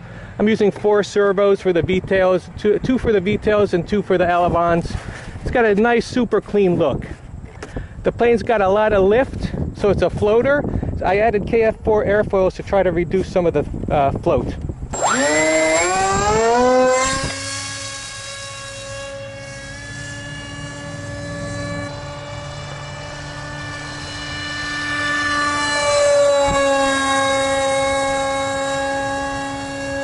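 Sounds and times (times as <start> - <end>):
electric motor propeller whine: 14.6 - 30.0.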